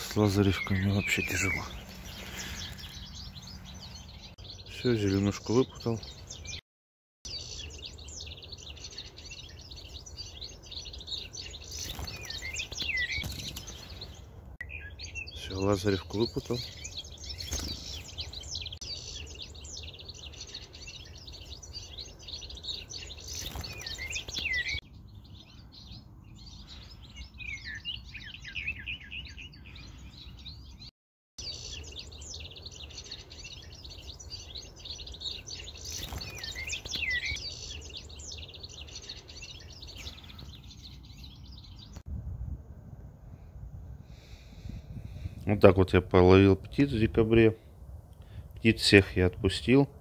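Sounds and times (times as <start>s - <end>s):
songbirds chirping: 0.0s - 6.6s, 7.2s - 50.0s
low rumble: 42.1s - 44.0s.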